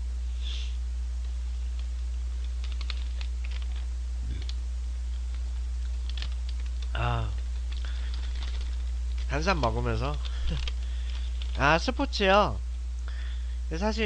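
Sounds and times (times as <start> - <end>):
low electrical hum: 0.0 - 14.0
paper bag crinkling: 6.0 - 11.6.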